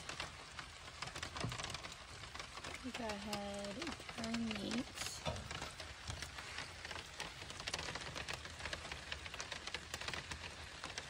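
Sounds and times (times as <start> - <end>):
rain pattering on vehicle: 0.0 - 11.0.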